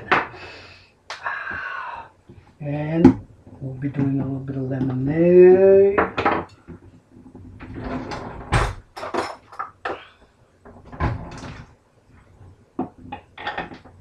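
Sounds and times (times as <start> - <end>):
cupboard and utensil clatter: 6.1 - 10.1, 12.8 - 14.0.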